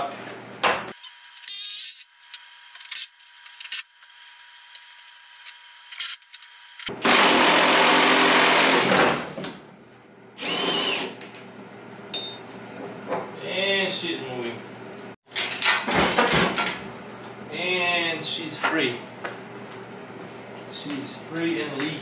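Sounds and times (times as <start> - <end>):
power tool running: 6.0 - 9.3, 10.4 - 11.2.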